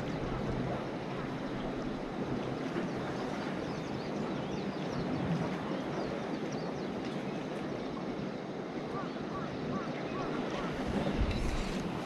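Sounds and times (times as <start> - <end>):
wind rumble: 10.2 - 12.0.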